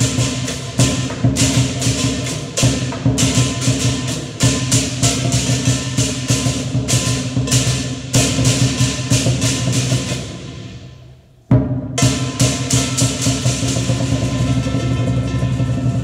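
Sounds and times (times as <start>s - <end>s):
cymbals crashing: 0.0s - 16.0s
drum beating: 0.0s - 16.0s.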